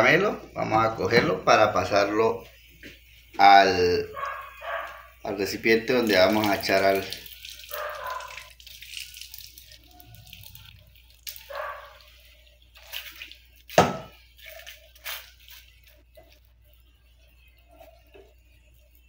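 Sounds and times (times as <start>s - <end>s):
syrup pouring and dripping: 4.2s - 19.0s
spatula scraping: 7.3s - 19.0s.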